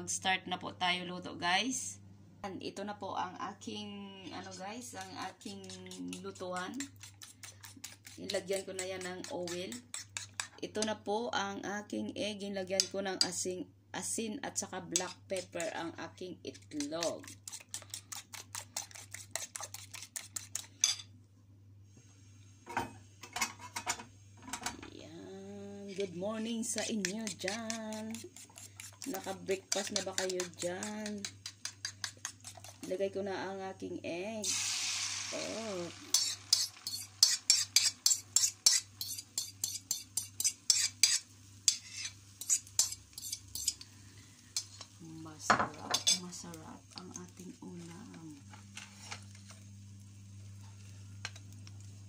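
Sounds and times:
eggs beaten in a bowl: 0:04.4 - 0:11.0, 0:14.9 - 0:20.9, 0:25.9 - 0:33.2, 0:35.4 - 0:43.8.

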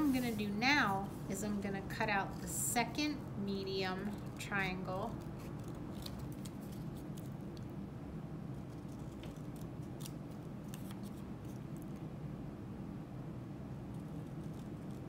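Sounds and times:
low room hum: 0:00.0 - 0:15.0
scissors snipping paper: 0:05.0 - 0:07.3, 0:08.9 - 0:11.6.

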